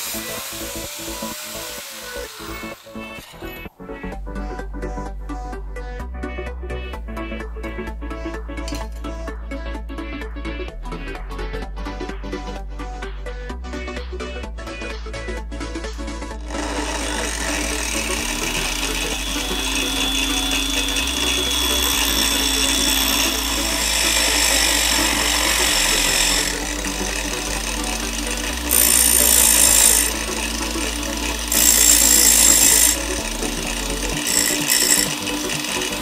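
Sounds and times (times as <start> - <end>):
angle grinder motor whine: 0.0 - 3.7, 16.4 - 36.0
steel bar grinding on wheel: 16.4 - 36.0.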